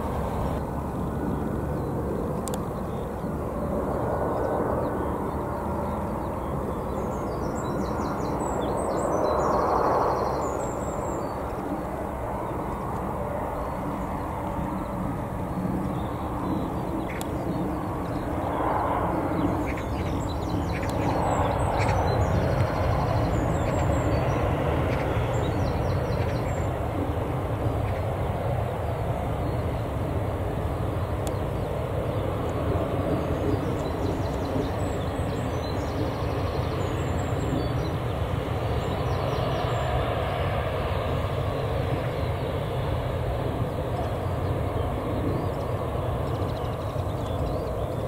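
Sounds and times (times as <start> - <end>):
jet airliner engines rumbling: 0.0 - 48.0
small birds chirping: 1.2 - 3.4, 4.3 - 48.0.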